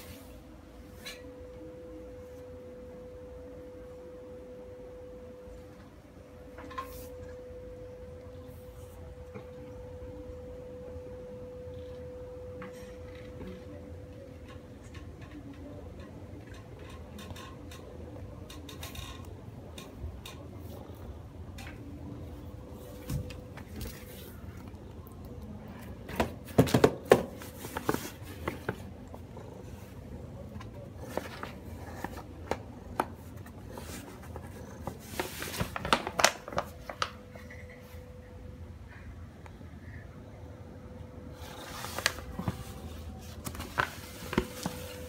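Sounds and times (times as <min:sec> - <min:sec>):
faint steady hum: 0:00.0 - 0:45.0
paper bag crinkling: 0:33.7 - 0:37.2, 0:41.5 - 0:45.0
sharp paper crackles: 0:34.9 - 0:37.2.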